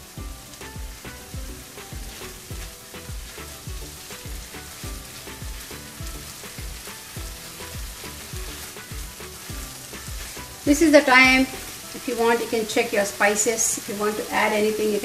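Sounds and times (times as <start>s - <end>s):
background music with steady beat: 0.0s - 15.0s
meat and onions sizzling in a pan: 0.0s - 15.0s
spatula stirring: 1.2s - 12.7s.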